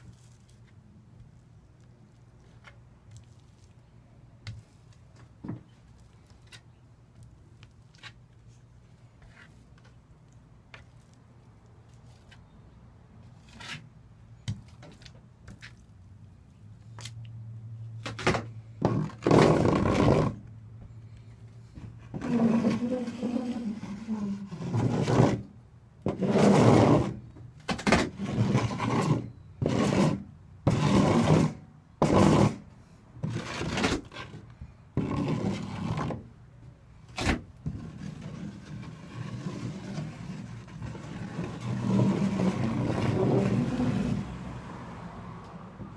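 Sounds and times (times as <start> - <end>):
trowel scraping adhesive: 22.1 - 25.5, 26.1 - 27.2, 27.9 - 34.4, 35.0 - 36.2, 37.2 - 44.3.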